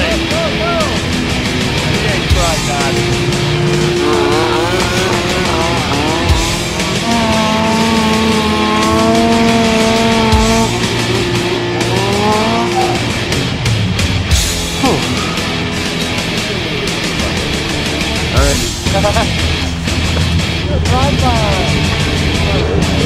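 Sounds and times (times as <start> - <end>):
rock music: 0.0 - 23.0
snowmobile engine revving: 0.7 - 20.1.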